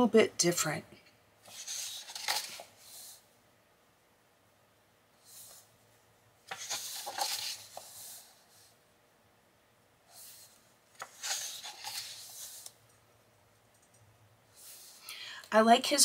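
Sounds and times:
book pages turning: 1.4 - 3.2, 6.4 - 8.5, 10.2 - 12.9.

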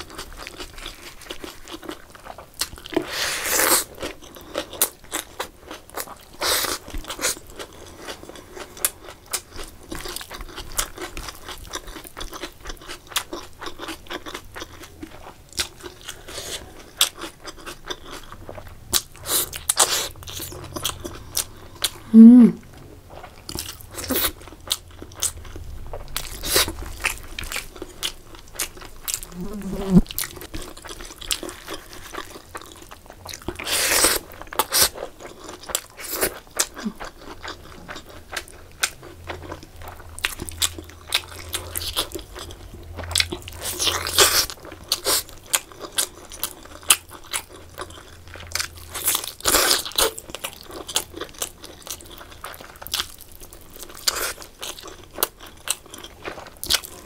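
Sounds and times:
wet chewing and lip-smacking: 23.1 - 57.0.

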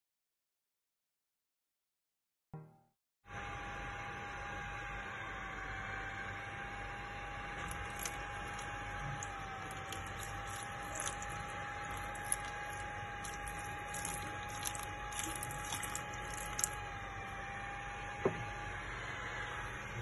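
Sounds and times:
water splashing and dripping: 7.6 - 16.8.

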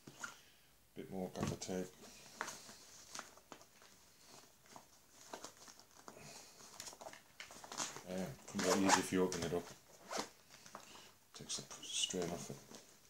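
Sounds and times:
fabric pouch rustling: 2.0 - 10.8.

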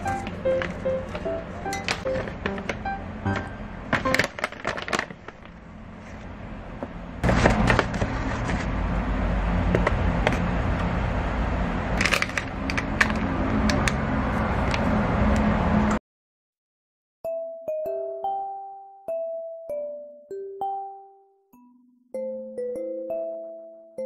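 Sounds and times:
sharp crinkles: 4.0 - 6.3.

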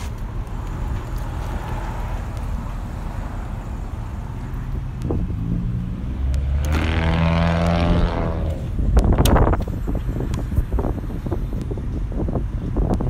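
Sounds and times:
vehicle engine approaching: 0.0 - 12.8
low rumble of street traffic: 0.0 - 13.0.

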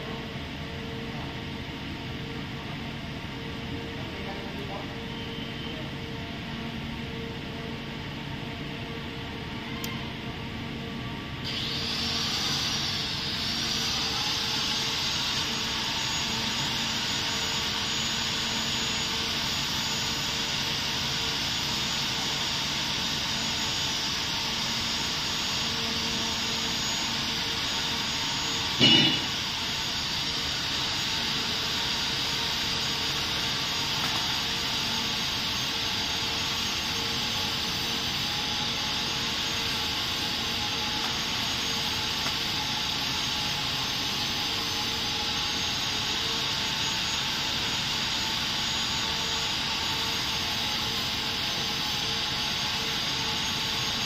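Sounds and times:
machine humming: 0.0 - 54.0
sharp knock: 28.8 - 29.3.

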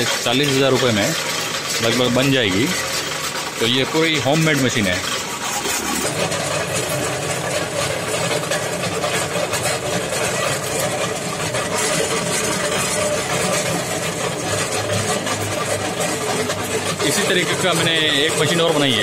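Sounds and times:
cement mixer motor humming: 0.0 - 19.0
mixer drum churning wet cement: 0.0 - 19.0.

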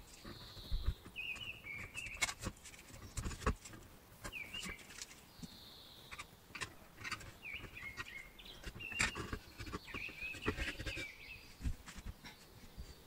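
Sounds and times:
metal parts clicking and tapping: 6.1 - 11.0.

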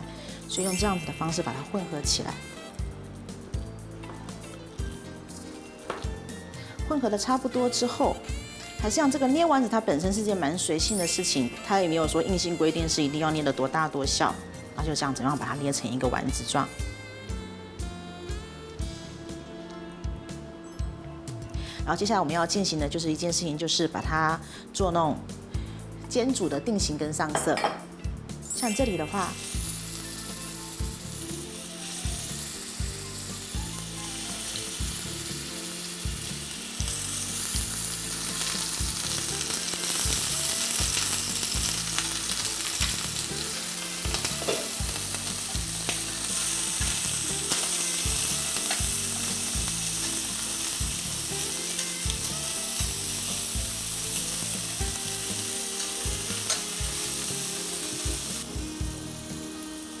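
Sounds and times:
meatballs sizzling in oil: 28.5 - 60.0
utensils clicking against pan: 39.4 - 53.0, 54.0 - 57.5.

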